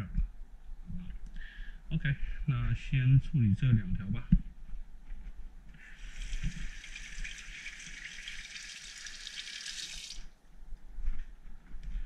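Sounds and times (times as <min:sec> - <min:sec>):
running water hiss: 0:05.9 - 0:10.3.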